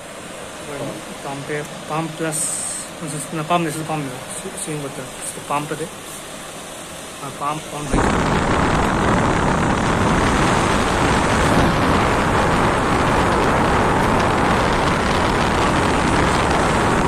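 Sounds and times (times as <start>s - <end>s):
air cooler fan blowing: 0.0s - 17.0s
wind noise on microphone: 7.8s - 17.0s.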